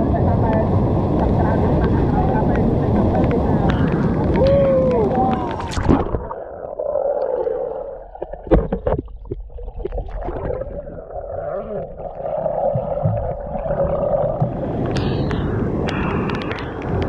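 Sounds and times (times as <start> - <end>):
muffled underwater river rush: 0.0 - 17.0.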